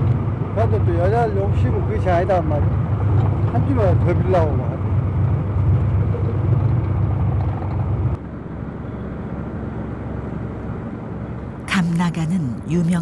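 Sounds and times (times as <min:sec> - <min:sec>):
choppy sea rushing: 0:00.0 - 0:08.2
boat engine droning: 0:00.0 - 0:13.0.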